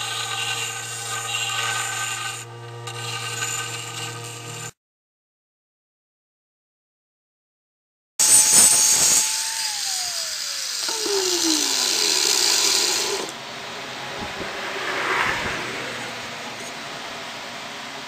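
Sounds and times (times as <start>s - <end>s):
electric drill winding down: 0.0s - 4.7s, 8.2s - 13.4s.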